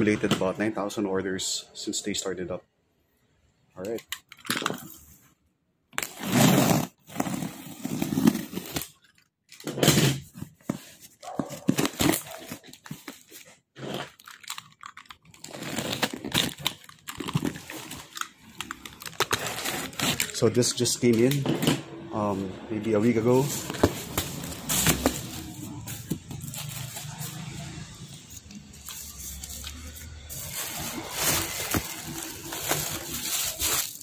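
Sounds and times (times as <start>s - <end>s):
packing tape ripping: 6.0s - 9.0s, 11.6s - 12.8s, 13.8s - 20.5s, 23.6s - 28.0s, 28.7s - 34.0s.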